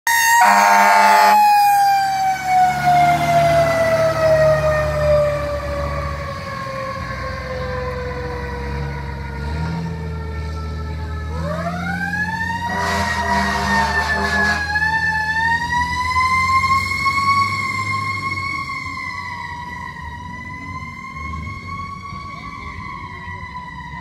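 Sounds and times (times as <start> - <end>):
fire engine siren wailing: 0.0 - 24.0
harsh horn blast: 0.1 - 1.4, 12.7 - 14.7
truck engine rumble: 0.1 - 24.0.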